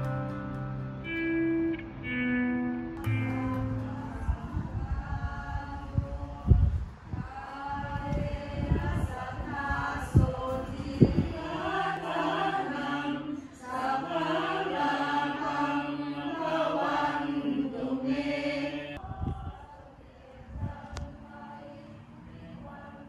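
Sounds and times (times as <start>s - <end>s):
group of voices chanting: 11.4s - 21.8s.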